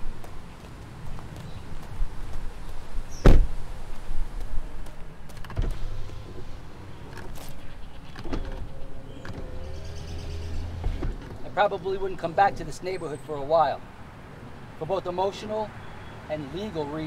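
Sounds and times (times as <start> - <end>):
van door shutting: 3.1 - 3.6, 5.4 - 11.5.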